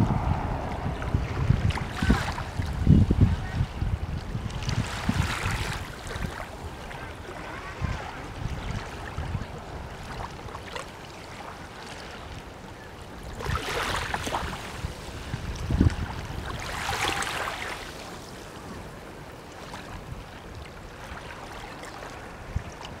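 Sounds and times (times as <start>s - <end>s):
low wind rumble: 0.0s - 10.6s, 14.0s - 17.6s
small waves lapping on sandy shore: 0.0s - 23.0s.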